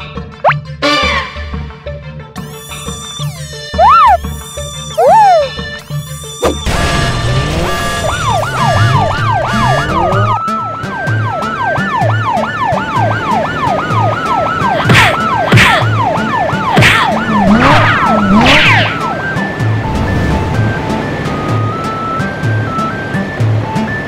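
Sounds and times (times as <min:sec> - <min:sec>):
cartoon police siren: 0:03.3 - 0:05.6, 0:07.5 - 0:19.2.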